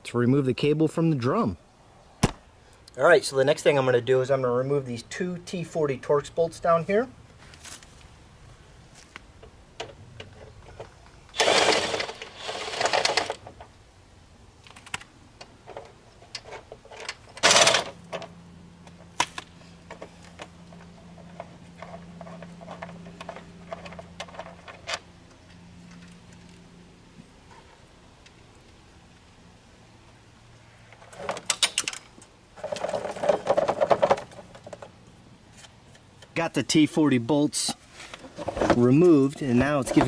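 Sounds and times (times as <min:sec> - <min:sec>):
loud rasping tool bursts: 0:11.4 - 0:13.4.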